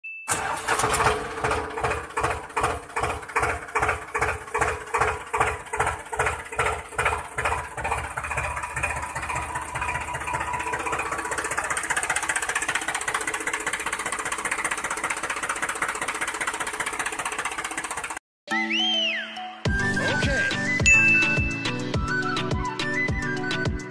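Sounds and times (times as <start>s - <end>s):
tractor engine chugging: 0.3s - 18.2s.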